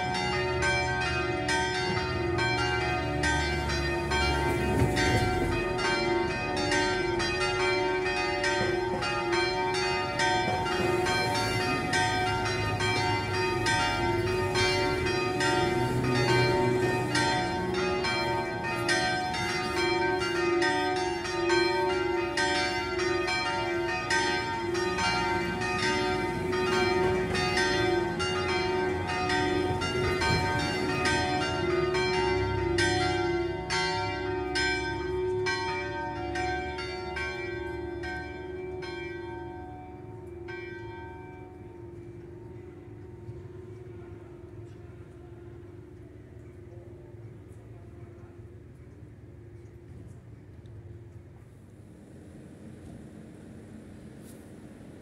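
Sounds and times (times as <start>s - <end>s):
church bells pealing: 0.0s - 48.7s.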